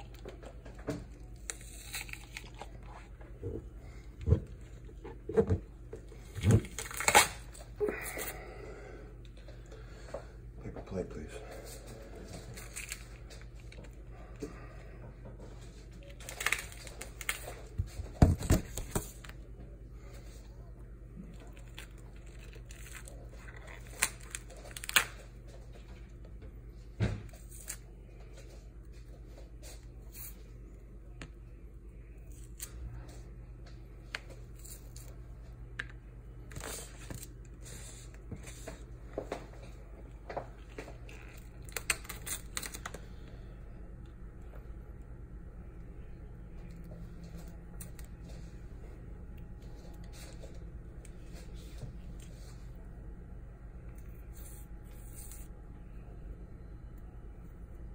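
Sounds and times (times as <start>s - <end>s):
fruit membrane tearing crackles: 0.0s - 3.2s, 6.2s - 8.4s, 12.4s - 14.1s, 16.0s - 17.8s, 21.2s - 25.4s, 40.6s - 43.1s
steady low hum: 0.0s - 57.9s
fruit being pulled apart: 1.2s - 3.0s, 6.2s - 8.3s.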